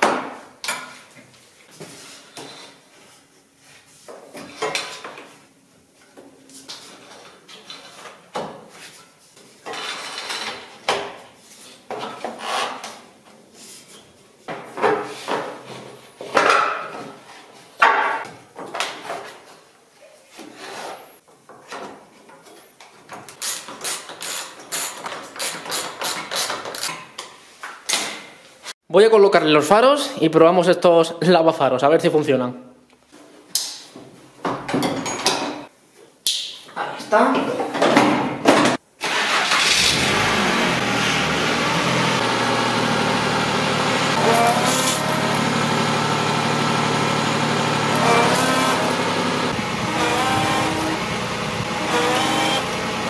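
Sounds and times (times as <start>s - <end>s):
hands rubbing and scraping parts: 47.5s - 52.8s.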